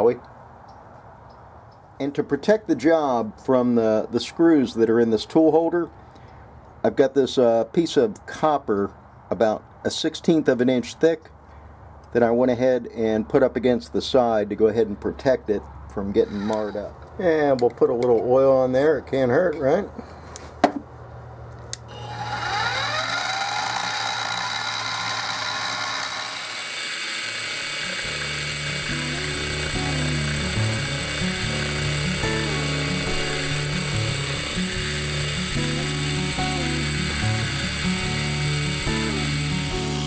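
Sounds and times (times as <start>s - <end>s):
mill spindle motor whining: 21.8s - 40.0s
background music with bass line: 28.8s - 40.0s.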